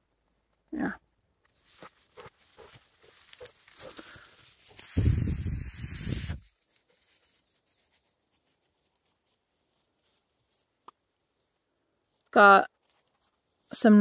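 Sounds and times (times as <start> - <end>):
person blowing hard breath: 3.9 - 6.4.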